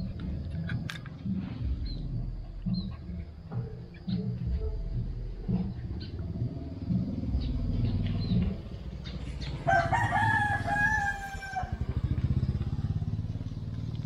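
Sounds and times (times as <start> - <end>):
low rumble: 0.0 - 14.0
rooster crowing: 9.5 - 12.0.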